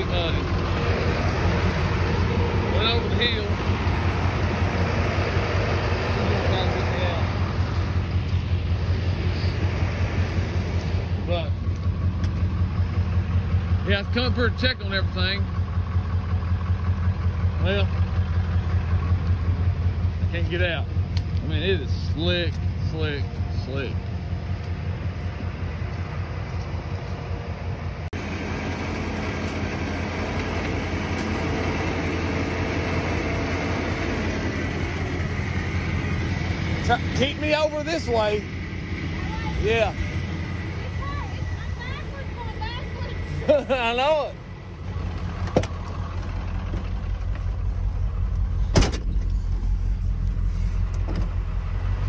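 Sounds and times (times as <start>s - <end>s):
diesel engine rumbling: 0.0s - 52.0s
car door shutting: 48.7s - 49.4s.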